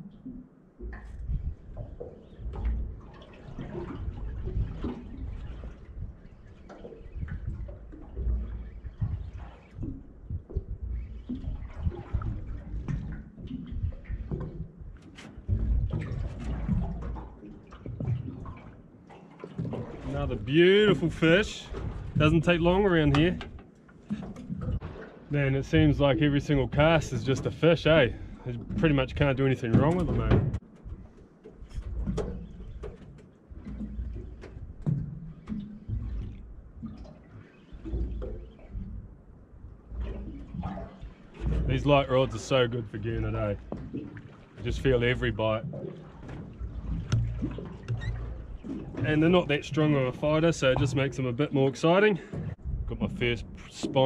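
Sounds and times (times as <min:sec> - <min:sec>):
water splashing against a boat: 0:00.0 - 0:54.0
low rumble: 0:07.1 - 0:17.0, 0:52.5 - 0:53.9
light knocks and clicks: 0:46.3 - 0:49.0.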